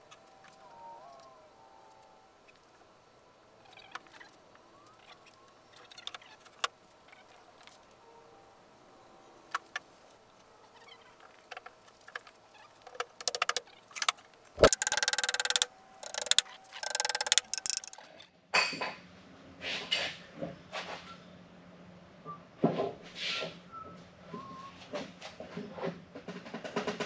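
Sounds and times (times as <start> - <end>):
wooden parts clattering: 11.5 - 18.0
scattered clicks: 12.1 - 18.1
sharp wooden knock: 14.6 - 18.0.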